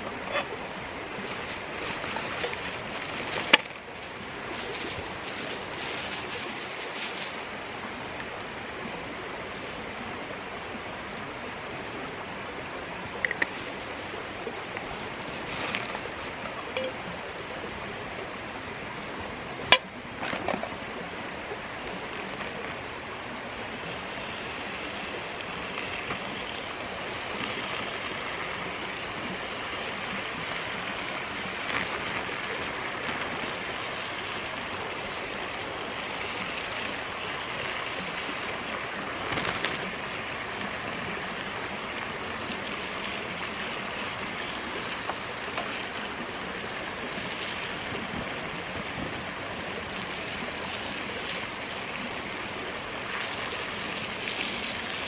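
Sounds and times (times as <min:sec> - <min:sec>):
creek flowing: 0:00.0 - 0:55.0.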